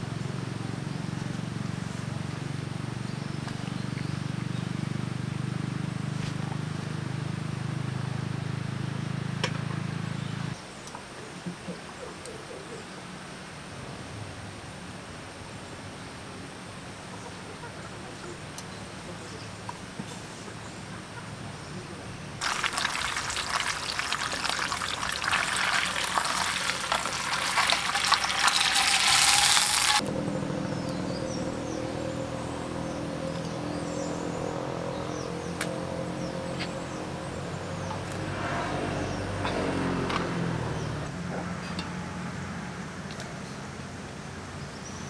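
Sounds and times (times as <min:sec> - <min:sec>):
food sizzling in a pan: 0:22.4 - 0:30.0.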